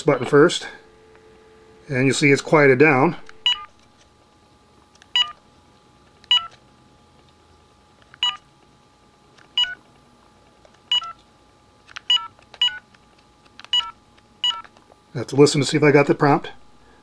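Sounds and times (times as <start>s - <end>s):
phone keypad beeps: 3.4s - 3.7s, 5.1s - 5.4s, 6.3s - 6.6s, 8.2s - 8.4s, 9.6s - 9.8s, 10.9s - 11.2s, 12.1s - 12.8s, 13.7s - 14.7s.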